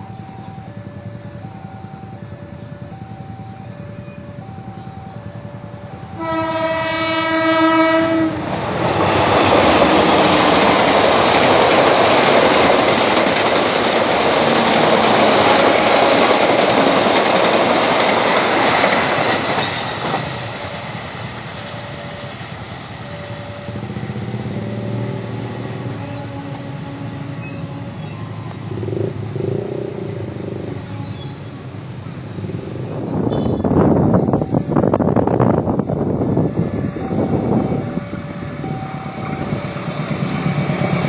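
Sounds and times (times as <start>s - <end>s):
two-tone level crossing beeps: 0.0s - 6.2s, 37.0s - 40.0s
train horn: 6.0s - 11.4s, 23.7s - 28.8s, 30.4s - 31.6s, 33.2s - 33.9s
train wheels clattering on rails: 8.2s - 26.7s, 33.8s - 41.0s.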